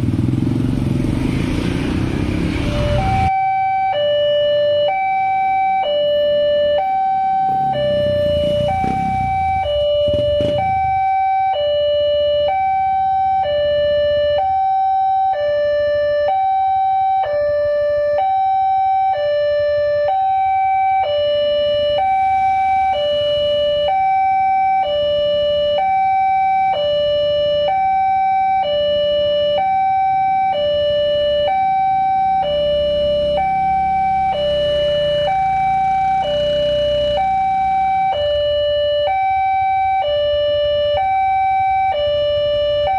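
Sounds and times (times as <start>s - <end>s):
motorcycle engines idling: 0.0s - 1.3s, 7.5s - 11.2s
two-tone crossing alarm: 2.6s - 42.9s.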